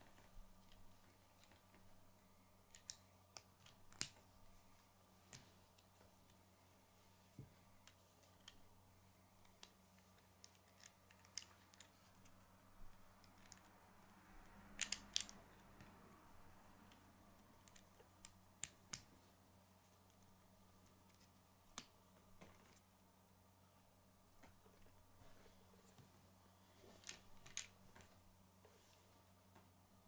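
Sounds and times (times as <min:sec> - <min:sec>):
plastic construction pieces clicking: 0:02.7 - 0:04.2, 0:09.5 - 0:12.4, 0:14.8 - 0:15.4, 0:27.0 - 0:27.7.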